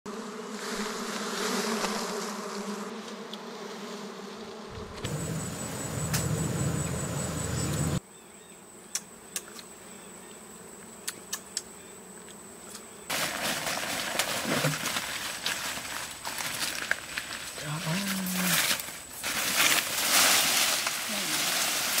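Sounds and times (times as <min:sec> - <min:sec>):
bees buzzing: 0:00.1 - 0:08.1, 0:08.7 - 0:22.0
low rumbling noise: 0:05.1 - 0:08.0
loud rustling hiss: 0:18.4 - 0:22.0.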